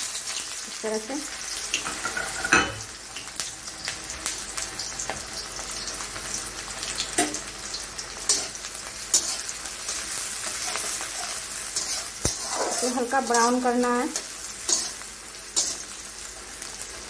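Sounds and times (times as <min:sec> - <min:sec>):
onions sizzling in oil: 0:00.0 - 0:17.0
spatula scraping metal pan: 0:08.3 - 0:15.0.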